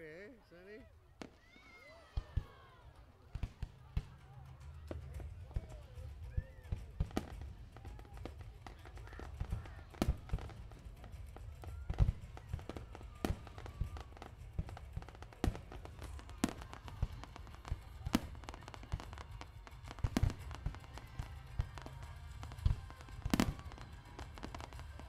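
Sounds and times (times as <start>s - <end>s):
faint voices: 0.0s - 25.0s
firework shells bursting: 6.8s - 25.0s.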